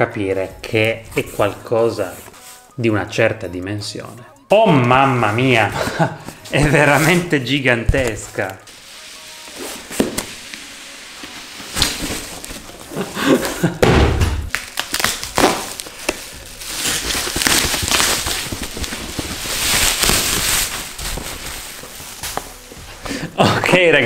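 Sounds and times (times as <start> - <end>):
bubble-wrap bag rustling: 5.6 - 13.8, 14.5 - 23.9
dull thud: 13.8 - 14.5.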